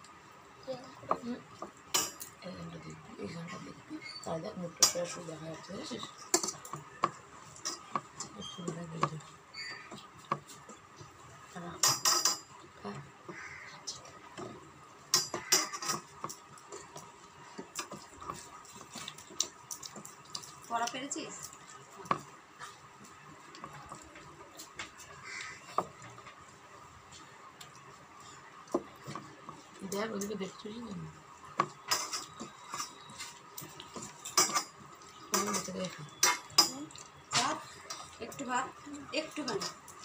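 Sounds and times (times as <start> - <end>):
hands mixing rice on steel plates: 0.9 - 40.0
low hum of a voice: 2.3 - 6.3.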